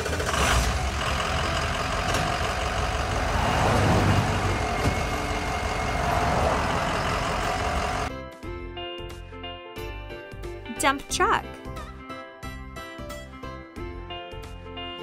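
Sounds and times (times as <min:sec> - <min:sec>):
heavy truck engine rumbling: 0:00.0 - 0:08.1.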